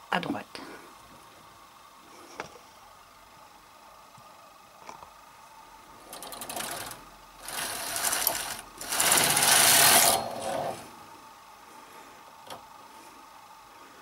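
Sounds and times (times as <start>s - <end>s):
knitting machine carriage rattling whir: 6.0s - 11.0s.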